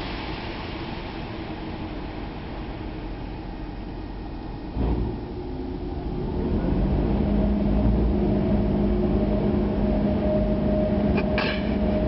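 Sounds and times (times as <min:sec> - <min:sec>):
car engine rumble inside cabin: 0:02.6 - 0:12.0.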